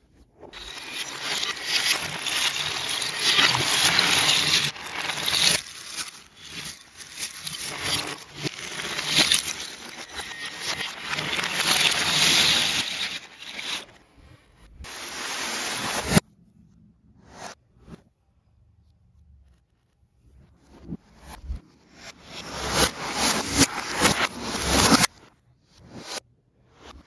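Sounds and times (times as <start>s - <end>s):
plastic pieces rattling: 0.6s - 13.8s.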